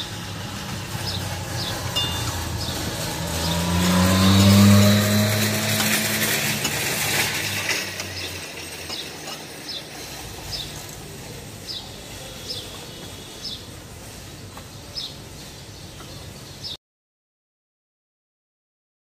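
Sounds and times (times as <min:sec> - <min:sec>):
low vehicle engine hum: 0:00.0 - 0:12.0.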